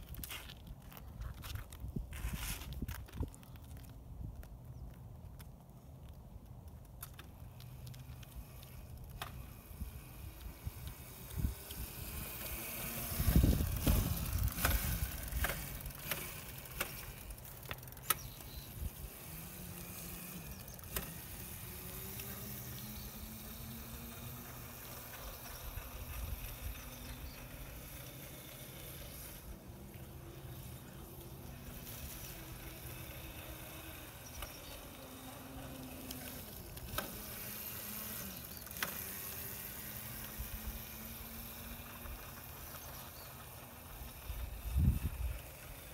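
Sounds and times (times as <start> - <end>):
faint outdoor hiss: 3.7 - 45.9
faint hum: 5.7 - 45.9
wind buffeting microphone: 9.6 - 16.8, 44.2 - 45.7.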